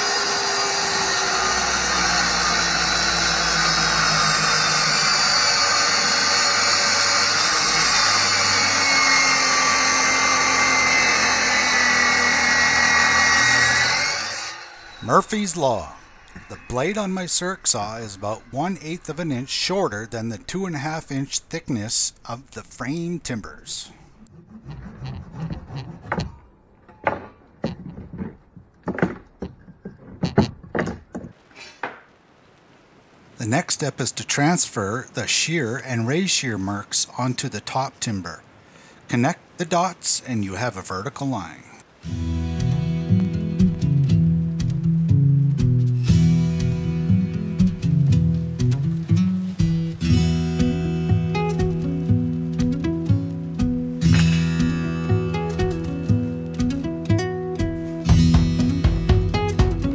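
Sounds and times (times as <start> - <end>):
circular saw cutting wood: 0.0 - 23.0
wooden knocks and thumps: 25.4 - 32.1.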